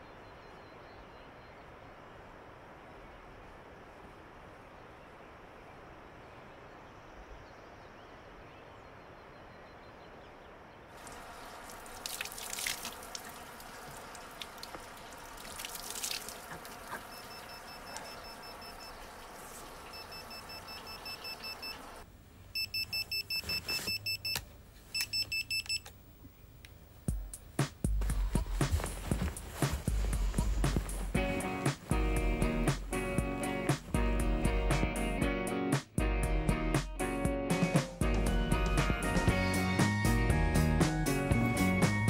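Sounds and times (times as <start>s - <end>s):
faint outdoor air noise: 0.0s - 36.5s
water splashing on face: 11.0s - 20.9s
water running into metal trough: 11.0s - 22.0s
mobile phone beeping: 19.9s - 22.0s, 22.6s - 25.9s
music: 27.1s - 42.0s.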